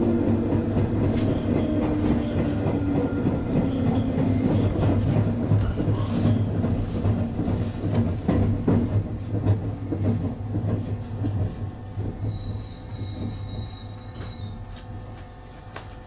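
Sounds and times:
electric train rolling: 0:00.0 - 0:15.2.

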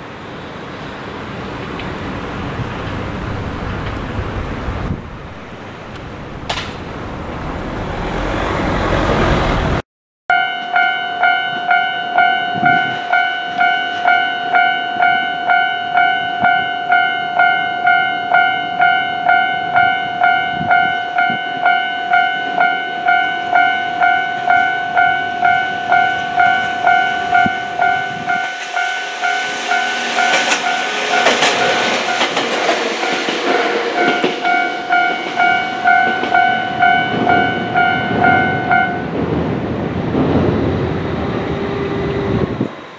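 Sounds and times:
train rushing past: 0:00.0 - 0:09.8, 0:12.3 - 0:42.9
level crossing bell ringing: 0:10.3 - 0:29.4, 0:34.4 - 0:39.1.

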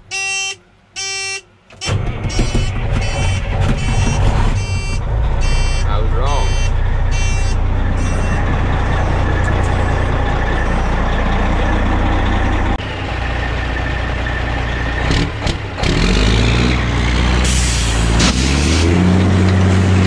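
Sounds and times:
warning buzzer beeping: 0:00.1 - 0:08.6
diesel truck engine idling: 0:01.5 - 0:16.0.

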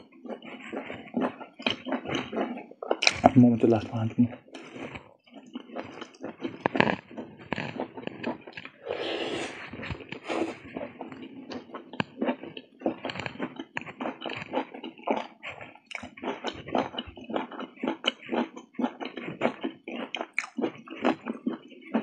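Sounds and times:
person chewing with wet smacks: 0:00.0 - 0:22.0.

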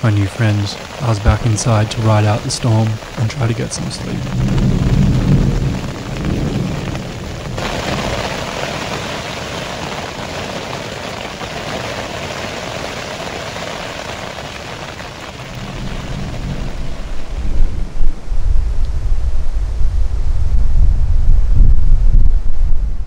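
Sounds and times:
rain hissing on tent: 0:00.0 - 0:22.6
low rumble: 0:01.2 - 0:08.5, 0:15.4 - 0:23.0.

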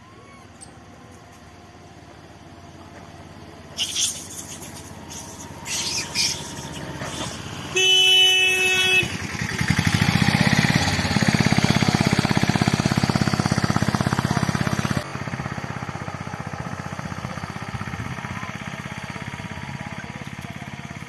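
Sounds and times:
auto-rickshaw engine chugging: 0:00.0 - 0:21.0
vehicle horn: 0:07.7 - 0:09.7.

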